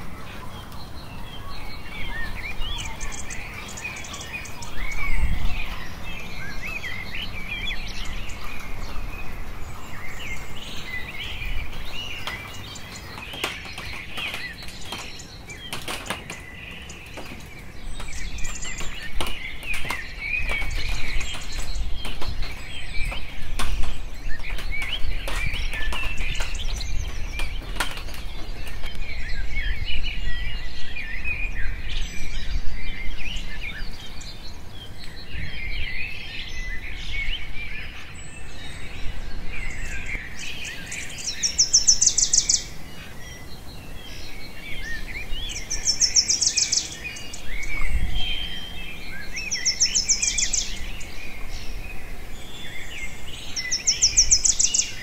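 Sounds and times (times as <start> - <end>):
small birds chirping: 0.0 - 55.0.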